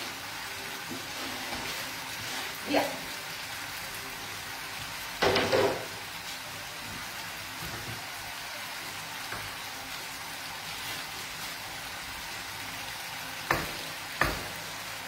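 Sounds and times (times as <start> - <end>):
sauce sizzling in a frying pan: 0.0 - 15.0
knocks against a pot: 5.2 - 5.9.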